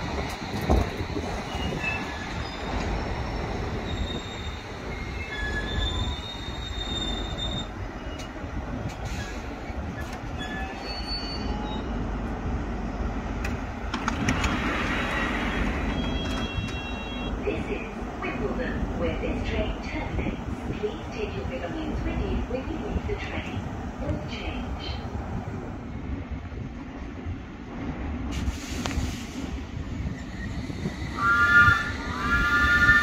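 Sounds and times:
train doors opening: 0:00.0 - 0:12.3, 0:13.3 - 0:17.4
train rumbling to a stop: 0:00.0 - 0:33.0
wheel and brake squeals: 0:01.4 - 0:08.4, 0:09.0 - 0:12.0, 0:14.4 - 0:17.3.

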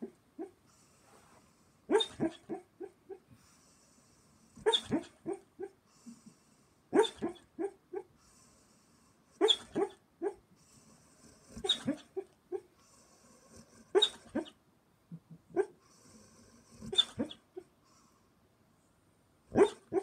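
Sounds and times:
dog barking in sleep: 0:01.9 - 0:03.2, 0:04.6 - 0:05.8, 0:06.9 - 0:08.1, 0:09.4 - 0:10.4, 0:11.5 - 0:12.7, 0:13.6 - 0:14.6, 0:15.5 - 0:15.8, 0:16.8 - 0:17.7, 0:19.5 - 0:20.0.

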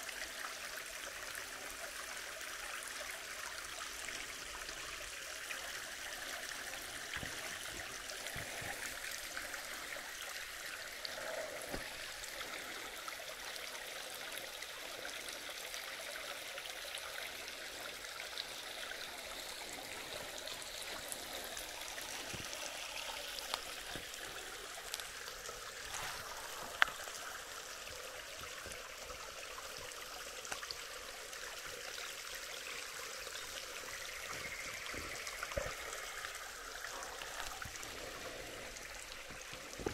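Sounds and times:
creek water running over rocks: 0:00.0 - 0:39.9
faint ticks: 0:24.8 - 0:25.2, 0:26.7 - 0:27.0.

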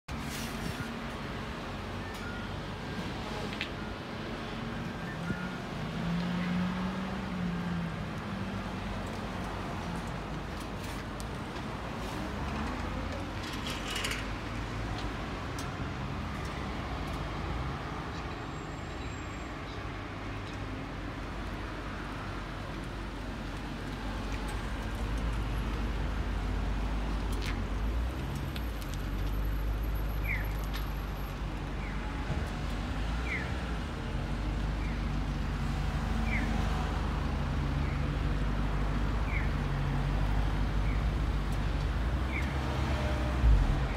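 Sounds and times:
road traffic: 0:00.1 - 0:43.9
car engine rumbling: 0:43.2 - 0:43.9.

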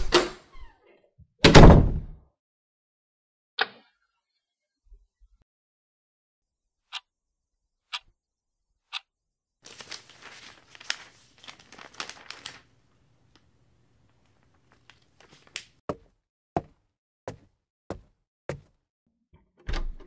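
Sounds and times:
clock ticking: 0:07.9 - 0:08.1
newspaper pages rustling: 0:09.6 - 0:15.8.

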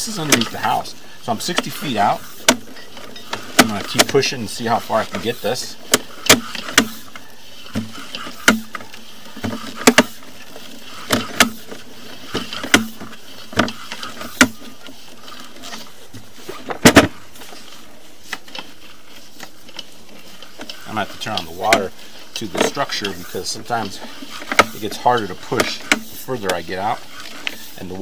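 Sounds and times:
push cable clicking and knocking: 0:02.4 - 0:04.2, 0:05.1 - 0:15.9, 0:20.5 - 0:27.6.

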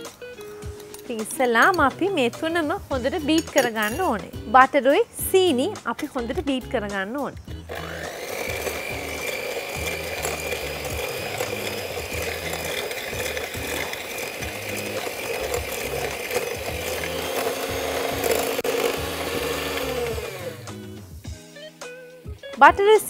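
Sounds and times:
electric hand mixer whining: 0:07.6 - 0:21.3.

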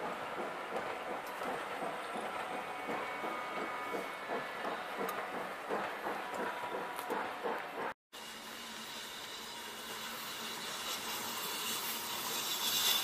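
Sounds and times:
train wheels knocking over rail joints: 0:00.0 - 0:08.0.

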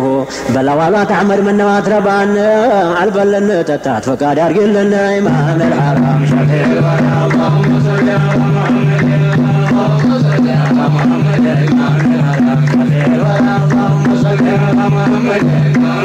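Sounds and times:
percussion: 0:00.0 - 0:03.3, 0:04.1 - 0:16.0
pulsing low bass note: 0:05.3 - 0:16.0.

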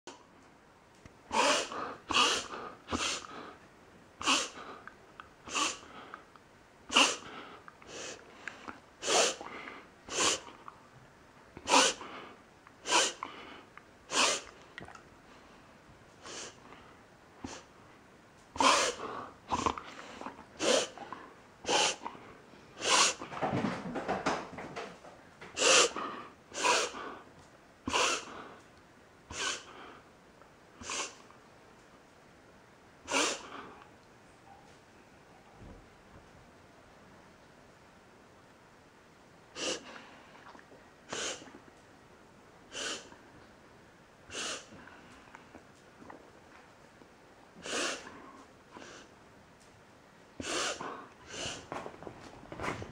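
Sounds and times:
dog snorting sniffs: 0:01.3 - 0:03.6, 0:04.2 - 0:04.9, 0:05.5 - 0:06.2, 0:06.9 - 0:10.6, 0:11.6 - 0:14.6, 0:16.2 - 0:16.6, 0:17.4 - 0:17.7, 0:18.6 - 0:23.4, 0:25.6 - 0:27.2, 0:27.9 - 0:28.6, 0:29.3 - 0:30.0, 0:30.8 - 0:31.3, 0:33.1 - 0:33.8, 0:39.6 - 0:40.0, 0:41.1 - 0:41.6, 0:42.7 - 0:43.2, 0:44.3 - 0:44.9, 0:47.6 - 0:49.1, 0:50.4 - 0:51.8.

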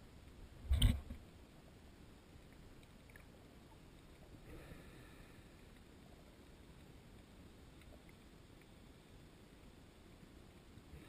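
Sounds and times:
faint underwater camera hiss: 0:00.0 - 0:11.0
faint ticks: 0:02.3 - 0:04.6, 0:05.2 - 0:11.0.

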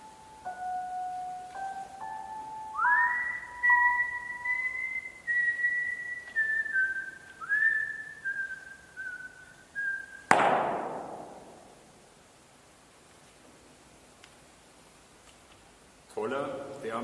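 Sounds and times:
person whistling a slow tune: 0:00.0 - 0:10.3
sharp bang ringing in hall: 0:10.3 - 0:11.9.

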